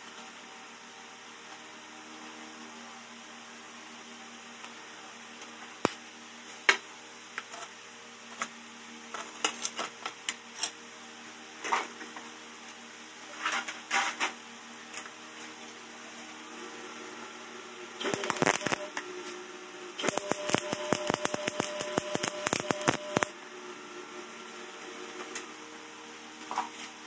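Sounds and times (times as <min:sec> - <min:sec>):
sharp clicks and ticks: 0:18.0 - 0:18.9, 0:20.0 - 0:23.3.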